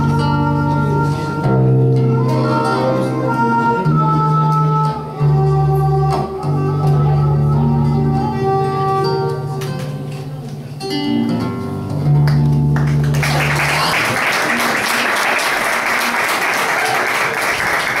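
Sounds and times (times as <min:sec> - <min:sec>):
acoustic guitar: 0:00.0 - 0:14.9
audience applause: 0:12.8 - 0:18.0.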